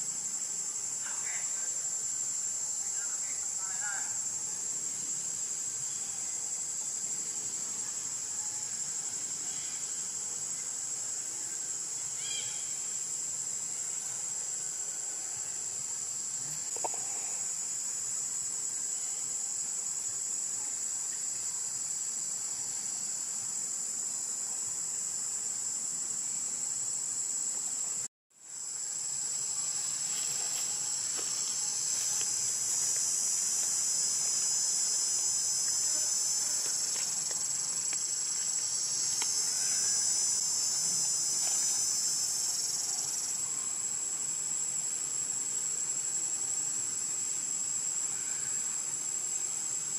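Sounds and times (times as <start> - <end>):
insects shrilling: 0.0 - 23.2, 28.5 - 45.2.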